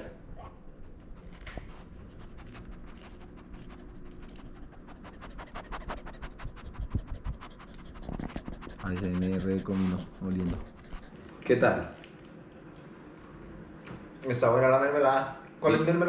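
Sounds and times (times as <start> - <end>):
quick dry scratching: 0.8 - 11.3.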